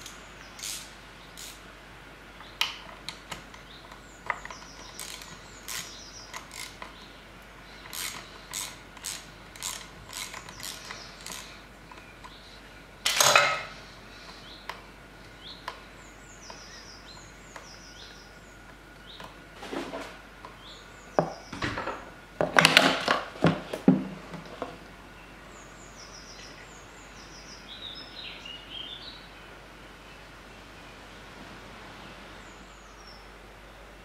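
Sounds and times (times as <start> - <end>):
ratchet wrench clicking: 0.0 - 1.6, 4.8 - 7.0, 7.8 - 11.5.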